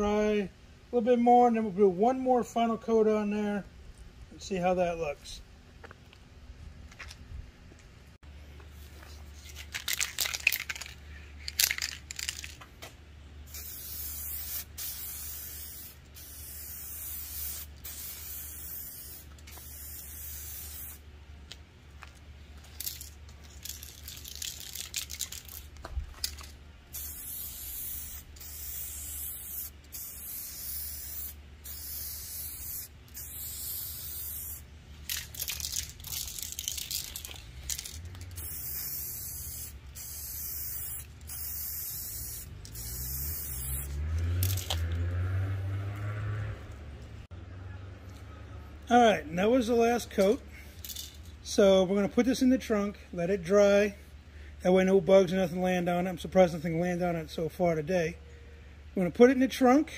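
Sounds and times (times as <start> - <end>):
spray paint can hissing: 9.4 - 12.6, 13.5 - 21.0, 22.6 - 44.9.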